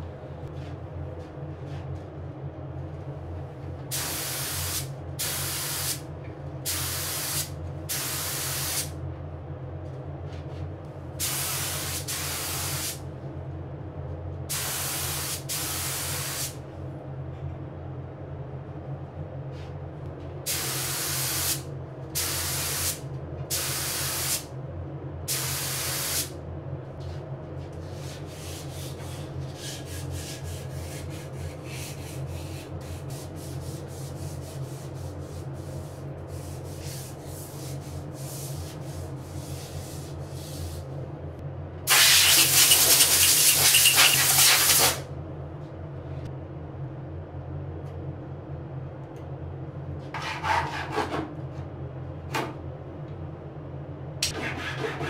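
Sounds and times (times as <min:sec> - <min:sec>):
steady low hum: 0:00.0 - 0:55.0
hand-sanding strokes: 0:27.9 - 0:40.7, 0:42.3 - 0:44.4
spray hissing: 0:41.9 - 0:45.0.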